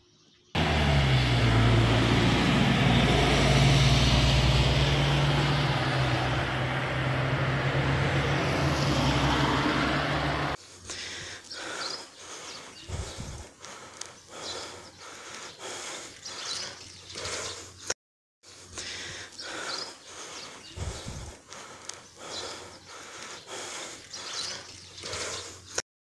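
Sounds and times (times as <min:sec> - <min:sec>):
road traffic: 0:00.6 - 0:25.8
faint scattered clicks: 0:13.6 - 0:14.3, 0:21.5 - 0:22.2.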